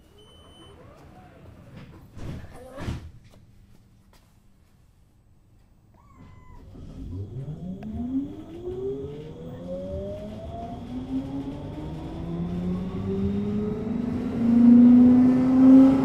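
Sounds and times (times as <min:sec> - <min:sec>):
tram electric drive whining: 0:06.6 - 0:16.0.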